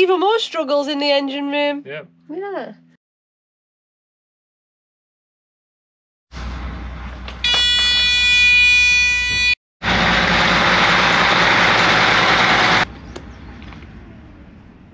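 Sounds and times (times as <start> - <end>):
loud multi-tone horn blast: 7.4 - 10.5.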